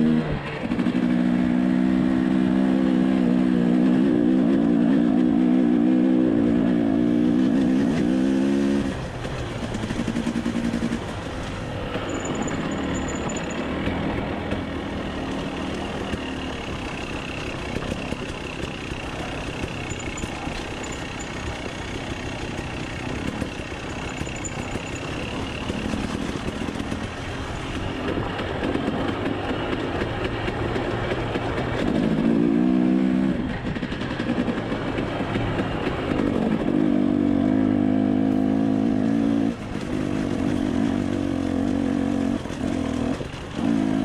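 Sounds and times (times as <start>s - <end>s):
dirt bike engine revving: 31.7s - 44.0s.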